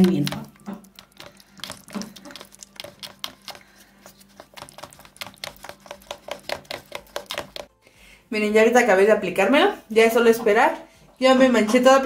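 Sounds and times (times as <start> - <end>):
spatula scraping plastic bowl: 0.0 - 7.7.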